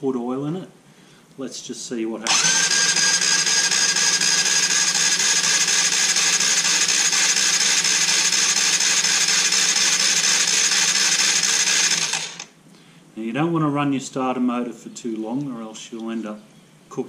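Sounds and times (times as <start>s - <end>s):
engine cranking on starter motor: 2.2s - 12.5s.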